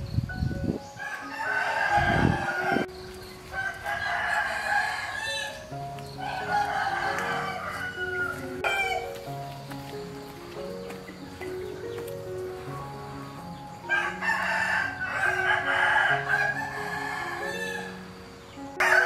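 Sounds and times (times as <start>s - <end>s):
background music of held notes: 0.0s - 19.0s
rooster crowing: 1.0s - 9.2s, 13.8s - 18.1s, 18.8s - 19.0s.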